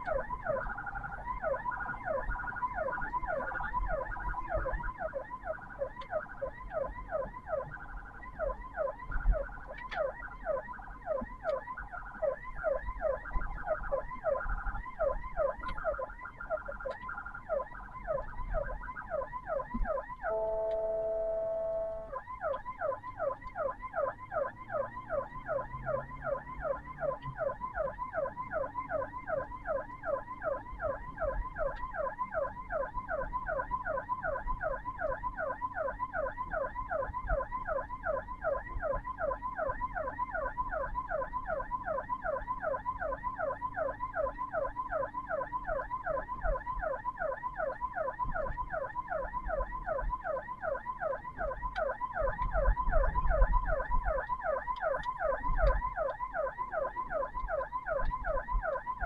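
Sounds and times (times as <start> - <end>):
ambulance siren yelping: 0.0 - 59.0.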